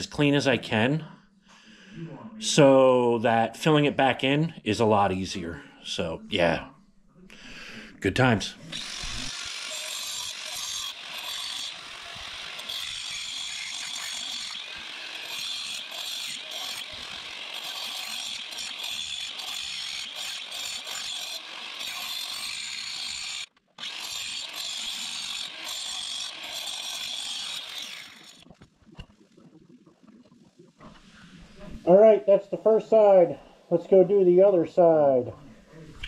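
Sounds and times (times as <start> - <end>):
angle grinder cutting brick: 8.6 - 28.4.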